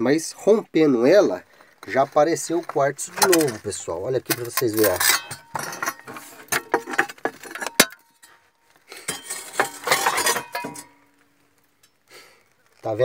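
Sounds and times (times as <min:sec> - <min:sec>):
stones clinking and scraping: 0:01.6 - 0:11.3.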